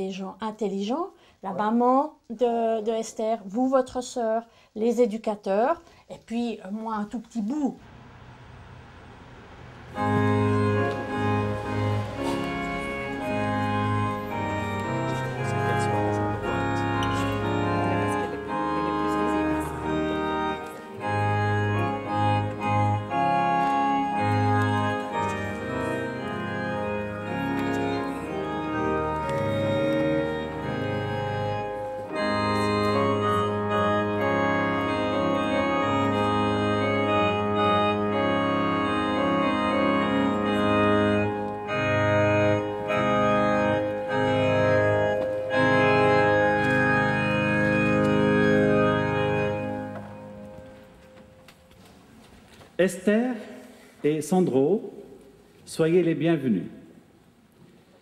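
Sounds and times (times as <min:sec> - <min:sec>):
organ music: 0:07.9 - 0:53.3.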